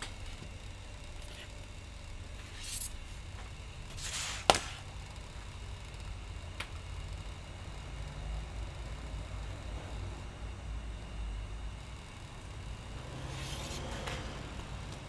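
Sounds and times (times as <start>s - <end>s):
low steady hum: 0.0s - 15.0s
scraping rustles on metal bench: 3.9s - 4.5s.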